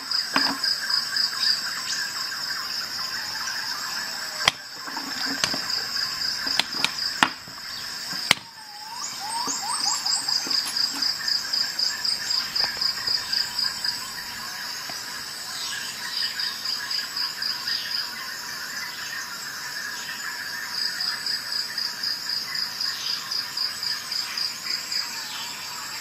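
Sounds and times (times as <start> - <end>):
high rapidly pulsing chirp: 8.7 - 14.4.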